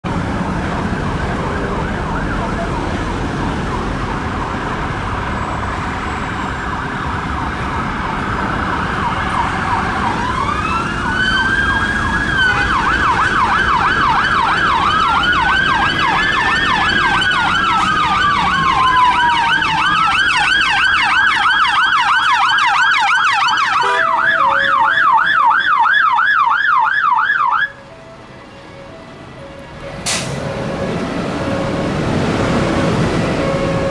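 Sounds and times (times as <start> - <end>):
emergency vehicle sirens: 0.0 - 33.9
road traffic noise: 0.0 - 33.9
two-note hi-lo siren: 9.2 - 31.9.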